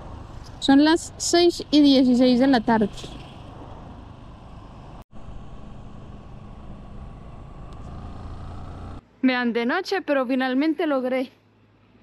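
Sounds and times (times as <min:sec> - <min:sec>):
road and wind noise: 0:00.0 - 0:09.2
motorcycle engine rumble: 0:04.8 - 0:09.0.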